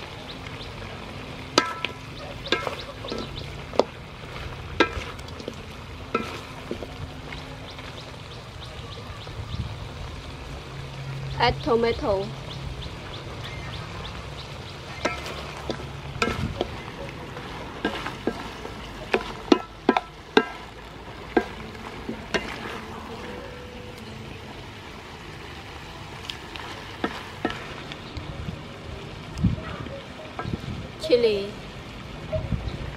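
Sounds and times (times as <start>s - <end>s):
soft steady sizzle: 0.0s - 32.9s
wooden spatula scraping wok: 1.6s - 7.0s, 14.8s - 23.4s.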